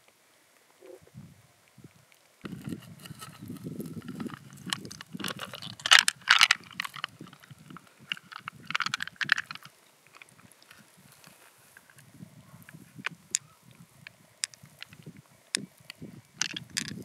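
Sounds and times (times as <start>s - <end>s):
wet squelching of mussel flesh: 2.5s - 12.0s.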